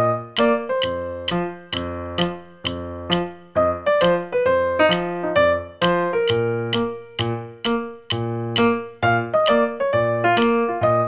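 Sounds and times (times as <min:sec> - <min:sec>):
piano melody: 0:00.0 - 0:11.0.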